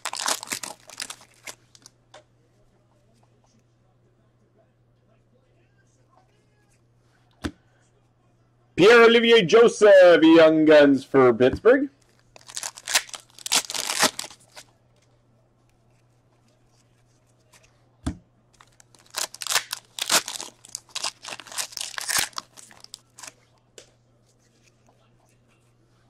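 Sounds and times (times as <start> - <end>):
foil crinkling and rustling: 0.0 - 1.9, 12.4 - 14.7, 18.6 - 23.4
foil wrapper tearing: 0.0 - 1.9, 12.4 - 14.7, 18.6 - 23.4.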